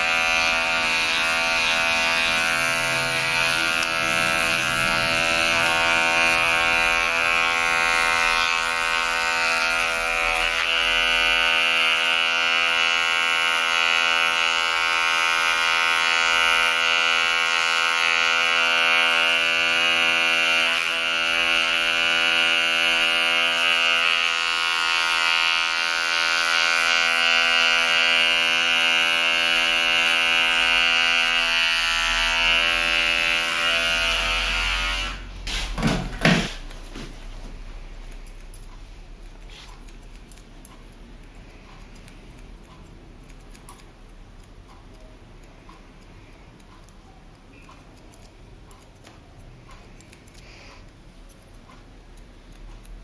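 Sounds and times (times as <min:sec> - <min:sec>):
electric hair clipper buzzing: 0:00.0 - 0:37.1, 0:39.4 - 0:40.4.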